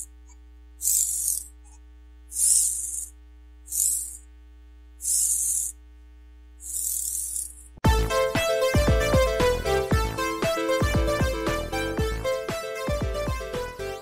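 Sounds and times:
steady low hum: 0.0s - 7.8s.

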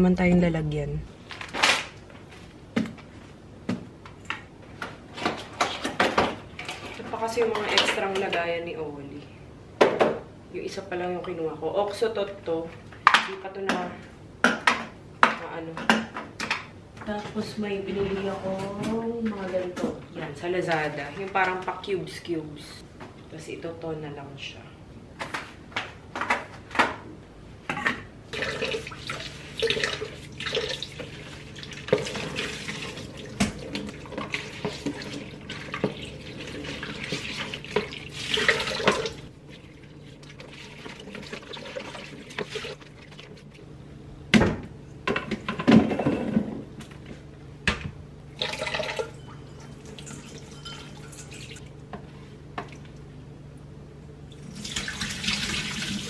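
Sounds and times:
tap water running into sink: 28.4s - 39.2s, 54.5s - 56.0s.

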